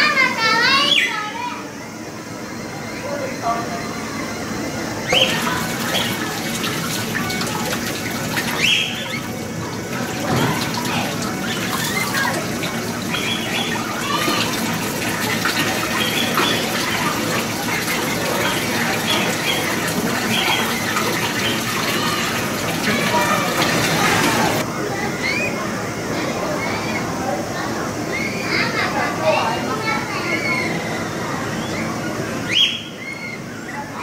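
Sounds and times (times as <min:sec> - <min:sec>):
water running into pool: 0:05.0 - 0:24.7.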